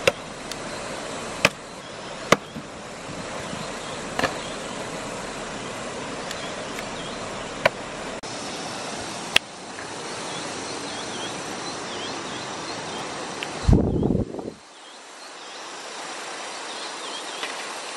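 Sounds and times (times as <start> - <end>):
stream water flowing: 0.0 - 17.9
sharp knocks: 1.4 - 1.6, 2.3 - 2.7, 4.2 - 4.4.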